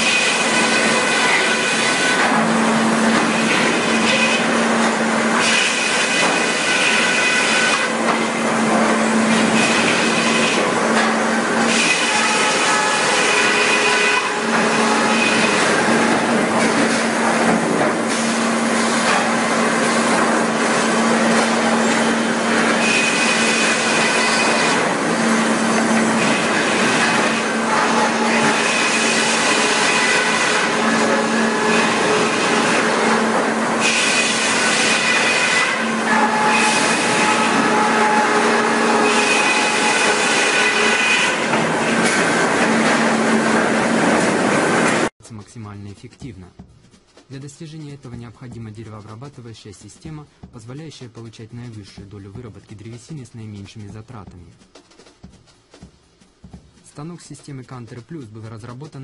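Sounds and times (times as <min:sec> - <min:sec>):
sawmill machinery running: 0:00.0 - 0:45.1.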